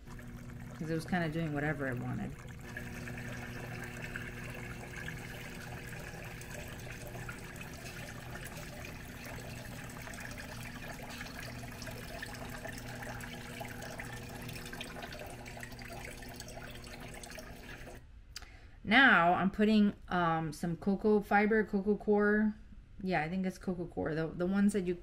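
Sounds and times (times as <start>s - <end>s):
water trickling: 0.0s - 18.0s.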